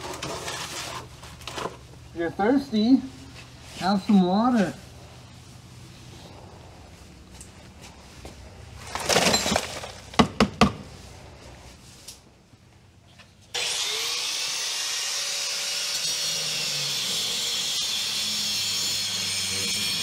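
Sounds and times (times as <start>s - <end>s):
rummaging through debris: 8.7s - 10.2s
angle grinder with wire brush: 13.5s - 20.0s.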